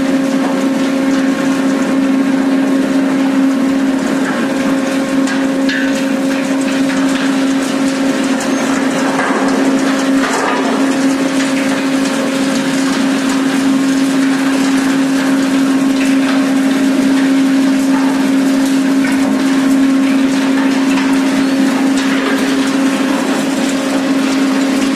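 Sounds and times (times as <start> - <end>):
loud machine hum: 0.0 - 24.9.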